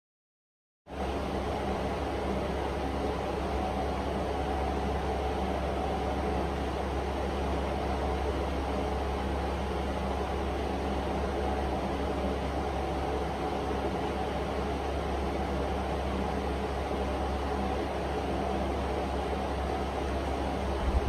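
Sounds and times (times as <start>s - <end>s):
machine hum and hiss: 0.9s - 21.0s.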